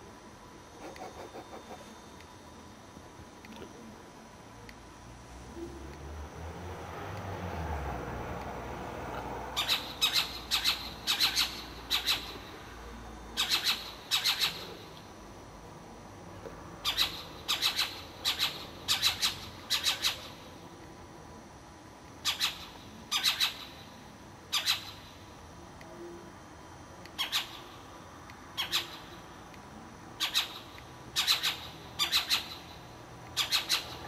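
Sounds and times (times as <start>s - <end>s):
owl rasping screech calls: 9.6s - 12.5s, 13.4s - 14.8s, 16.8s - 20.4s, 22.2s - 23.8s, 24.5s - 25.1s, 27.2s - 27.8s, 28.6s - 29.2s, 30.2s - 32.8s, 33.4s - 34.0s.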